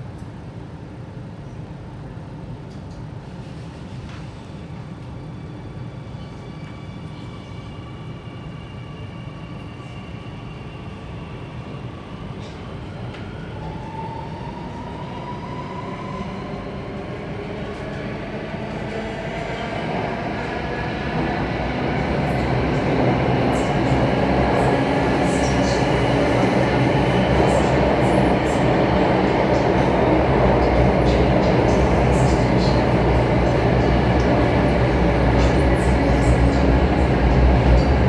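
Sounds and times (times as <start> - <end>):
train running rumble: 20.4 - 38.0.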